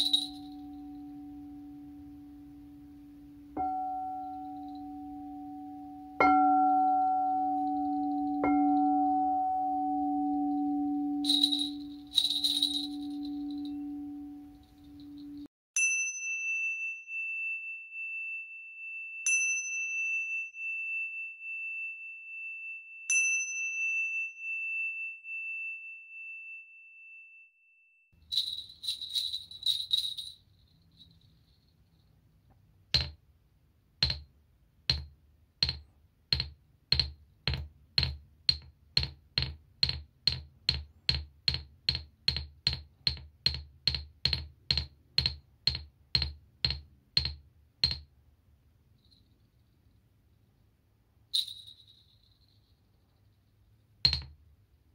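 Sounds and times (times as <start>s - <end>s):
small cymbals ringing: 0.0s - 18.0s
singing bowl ringing: 0.0s - 27.6s
stone tapping clicks: 34.0s - 34.3s, 34.9s - 48.1s.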